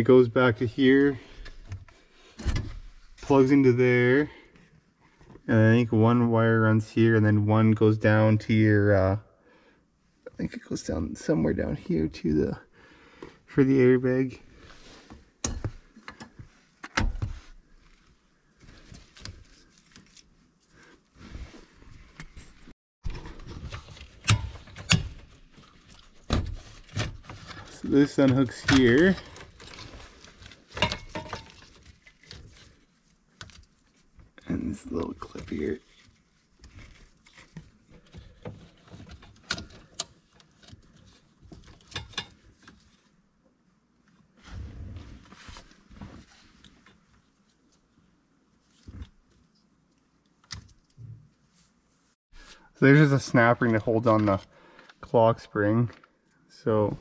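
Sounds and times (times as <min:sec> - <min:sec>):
wires rustling: 0:17.8 - 0:43.2.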